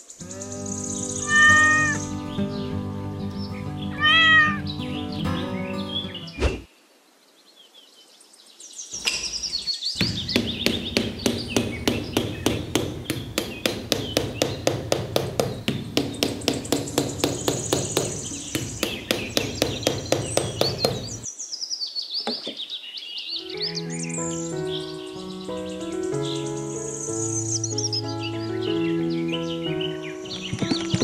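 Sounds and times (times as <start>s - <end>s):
birds chirping: 0.0s - 31.0s
rapid hammer tapping: 9.0s - 21.3s.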